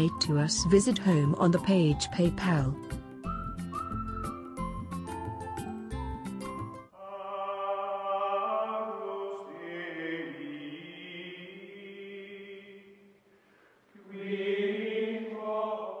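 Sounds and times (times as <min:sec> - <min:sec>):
choral chanting: 0:07.0 - 0:13.1, 0:13.9 - 0:16.0.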